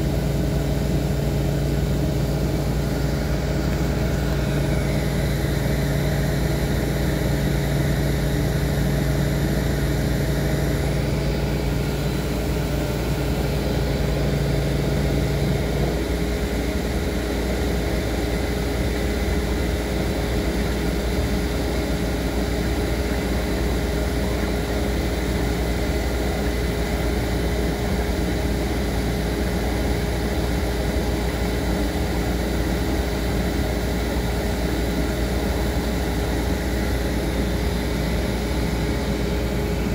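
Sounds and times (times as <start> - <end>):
lower hum: 0.0 - 28.0
machine humming: 0.0 - 39.9.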